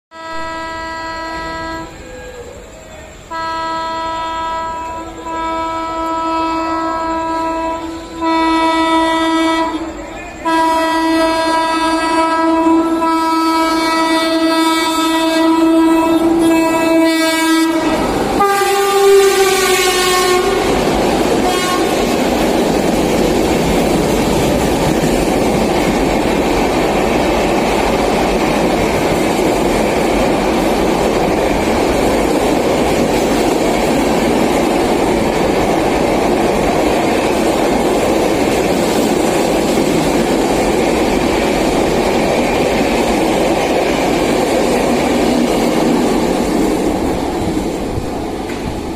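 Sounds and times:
locomotive horn blasts: 0:00.1 - 0:02.0, 0:03.3 - 0:20.8, 0:21.4 - 0:22.1
train coaches rumbling and clattering: 0:00.1 - 0:48.9.

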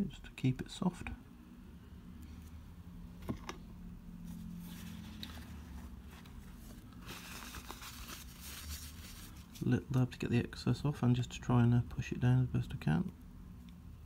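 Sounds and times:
paper tissue rustling and crinkling: 0:04.2 - 0:09.9.

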